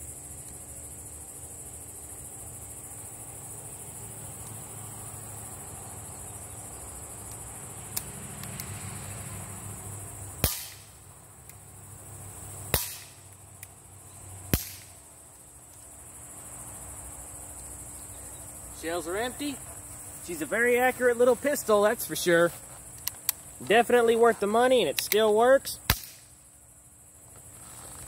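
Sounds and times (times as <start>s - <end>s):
crickets and insects buzzing: 0.0s - 28.0s
bb revolver shots: 10.4s - 11.0s, 12.7s - 13.2s, 14.5s - 15.0s, 25.9s - 26.3s.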